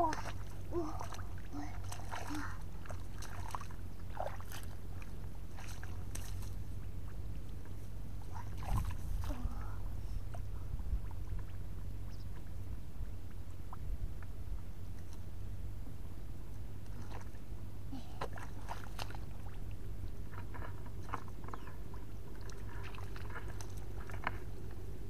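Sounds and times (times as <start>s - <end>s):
hands splashing in muddy water: 0.0s - 6.6s
steady low rumble: 0.0s - 25.0s.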